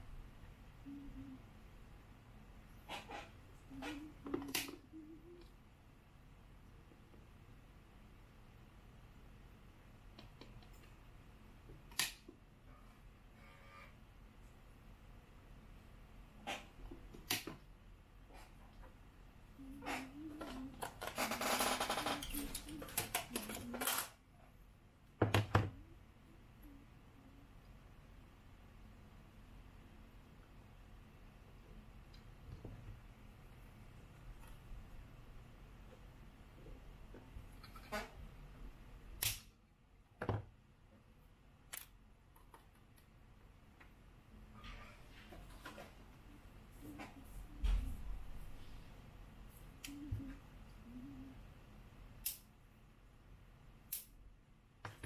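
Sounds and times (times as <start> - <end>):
faint room hum: 0.0 - 55.0
wavering pitched vocal sound: 3.6 - 5.5, 19.6 - 20.8.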